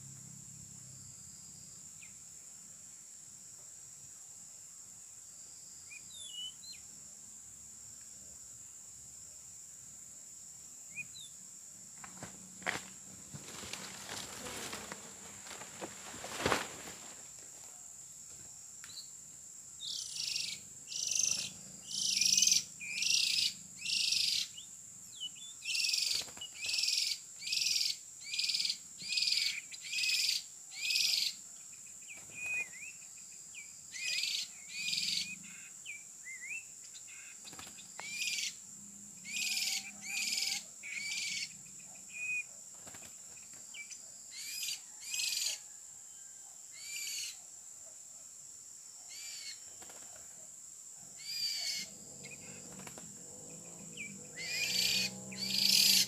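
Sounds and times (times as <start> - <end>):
high insect drone: 0.0 - 56.0
bird giving harsh calls: 54.4 - 56.0.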